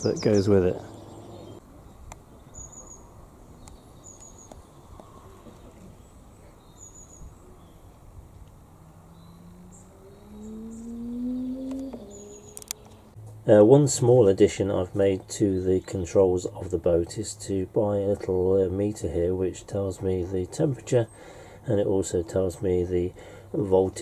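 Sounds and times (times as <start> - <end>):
low drone rising in pitch: 0.0 - 1.9, 7.3 - 13.7
high bird chirps: 8.9 - 13.2.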